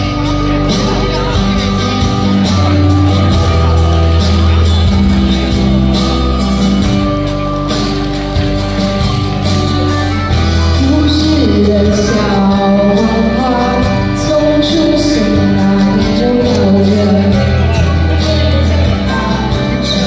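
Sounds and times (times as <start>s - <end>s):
held bass line: 0.0s - 20.0s
person singing: 9.2s - 20.0s.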